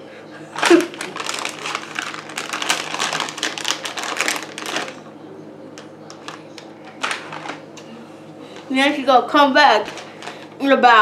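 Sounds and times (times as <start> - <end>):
plastic wrapper crinkling: 0.6 - 5.1, 5.8 - 7.6, 9.8 - 10.6.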